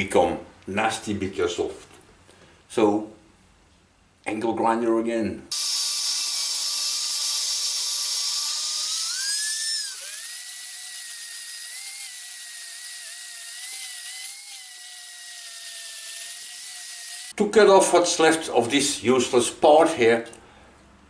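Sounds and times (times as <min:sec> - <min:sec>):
angle grinder whining on metal: 0:05.5 - 0:17.3.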